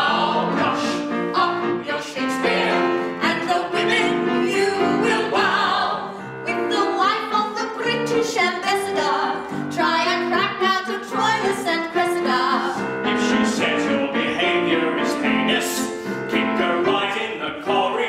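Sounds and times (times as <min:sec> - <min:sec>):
men singing: 0:00.0 - 0:06.0, 0:13.0 - 0:18.0
women singing: 0:00.0 - 0:12.8
piano accompaniment: 0:00.0 - 0:18.0.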